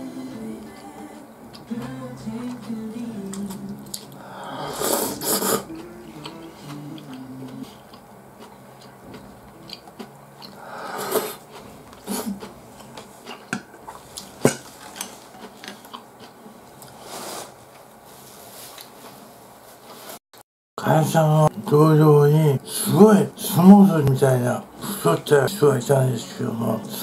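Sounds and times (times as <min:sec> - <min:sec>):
slurping noodles: 0:03.9 - 0:07.8, 0:10.5 - 0:12.5, 0:16.8 - 0:17.6.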